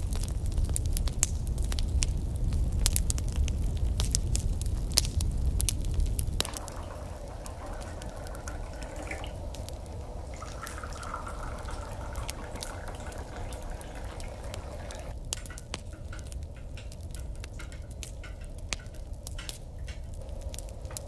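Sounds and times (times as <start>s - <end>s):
hot drink pouring into a cup: 6.4s - 15.6s
light clicks and taps: 10.4s - 21.0s.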